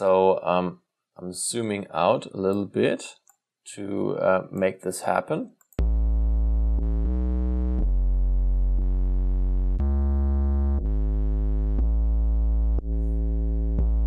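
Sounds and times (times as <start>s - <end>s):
sustained bass notes: 5.8s - 14.0s.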